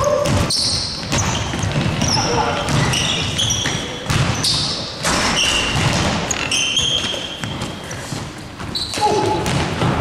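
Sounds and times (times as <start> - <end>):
basketball bouncing: 0.0 - 10.0
sneaker squeaks: 0.0 - 10.0
person shouting: 9.0 - 9.4.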